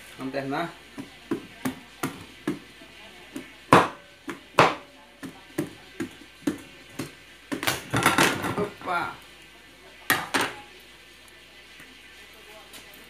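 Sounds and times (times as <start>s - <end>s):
knife chopping pumpkin rind: 0.9s - 2.7s, 3.3s - 7.9s.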